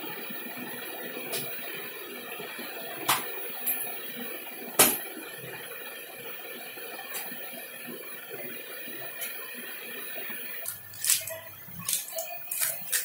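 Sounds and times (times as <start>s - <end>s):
hand slapping candy rope: 10.7s - 13.0s.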